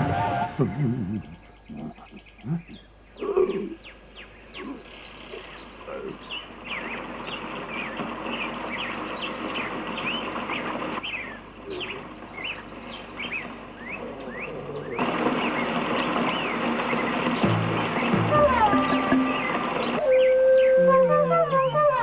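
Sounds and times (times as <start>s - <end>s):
steady rushing noise: 0.0s - 1.6s, 6.4s - 11.2s, 14.9s - 20.2s
birds chirping: 0.0s - 22.0s.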